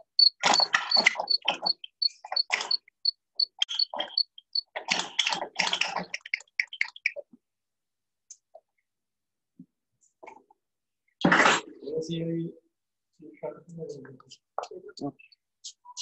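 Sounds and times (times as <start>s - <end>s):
high metallic ticks: 0.2s - 5.4s.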